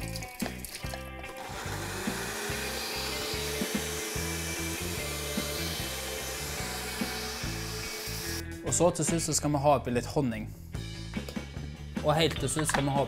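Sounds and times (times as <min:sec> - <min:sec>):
background music: 0:00.0 - 0:13.0
blender running: 0:01.3 - 0:08.4.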